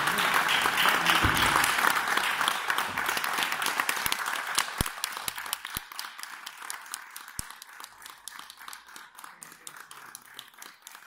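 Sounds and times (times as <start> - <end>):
people applauding: 0.0 - 11.0.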